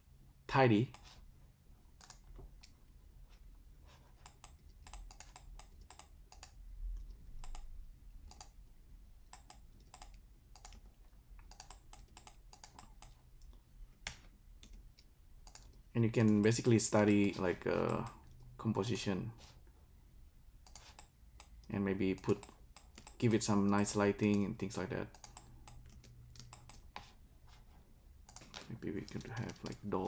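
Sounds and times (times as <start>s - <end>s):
low background hum: 0.0s - 30.0s
keyboard and mouse clicks: 2.0s - 2.8s, 4.1s - 18.4s, 20.6s - 23.4s, 25.1s - 27.1s, 28.3s - 29.9s.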